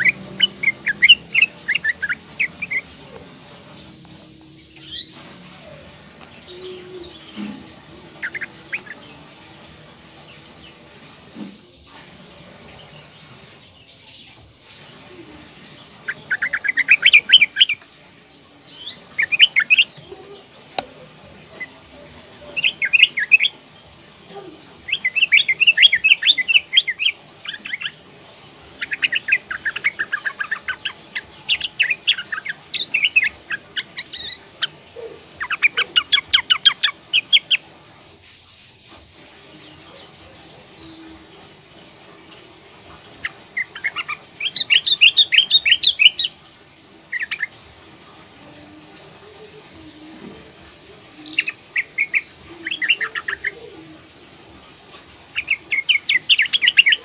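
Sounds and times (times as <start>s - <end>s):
bird chattering call: 0.0s - 2.9s, 8.2s - 9.0s.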